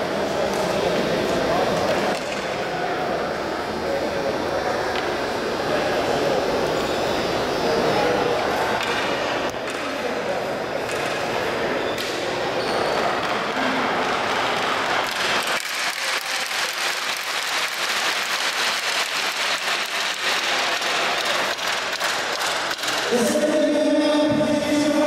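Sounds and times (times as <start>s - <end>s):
audience applauding: 13.5s - 23.2s.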